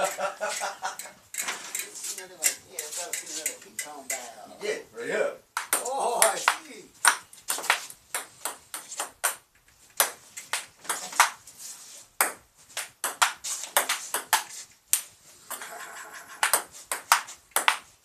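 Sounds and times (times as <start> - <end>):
ping-pong ball bouncing on table: 5.6 - 9.4, 12.2 - 12.4, 13.0 - 14.5, 15.5 - 17.9
ping-pong ball hitting paddles: 5.6 - 11.4, 12.2 - 14.5, 15.5 - 17.9.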